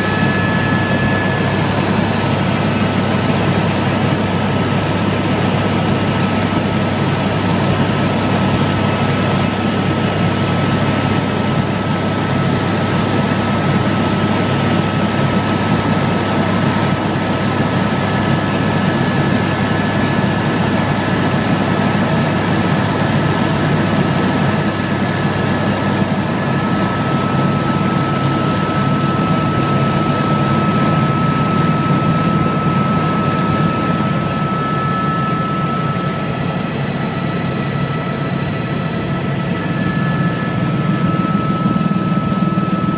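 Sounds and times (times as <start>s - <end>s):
thin high whine: 0.0s - 6.8s
helicopter rotor and engine drone: 0.0s - 42.9s.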